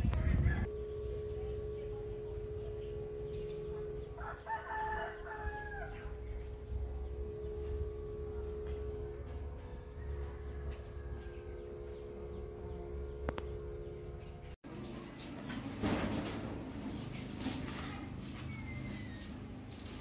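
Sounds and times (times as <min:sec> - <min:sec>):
rooster crowing: 0:03.2 - 0:13.2.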